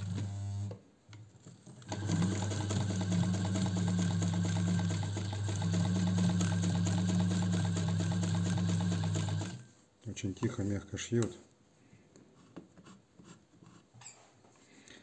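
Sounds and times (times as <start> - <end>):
sewing machine motor hum: 0.0 - 0.8, 1.4 - 9.7.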